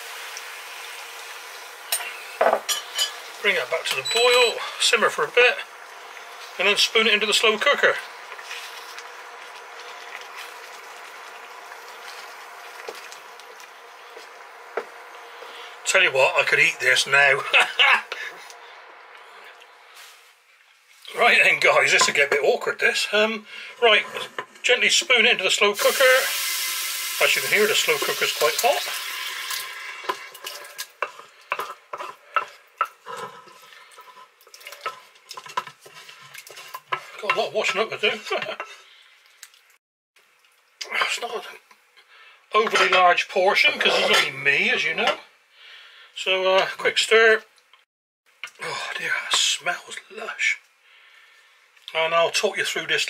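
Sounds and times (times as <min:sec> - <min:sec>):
sauce sizzling and bubbling in pan: 0:00.0 - 0:46.8
wooden spatula scraping and tapping: 0:06.1 - 0:15.7, 0:30.0 - 0:38.8.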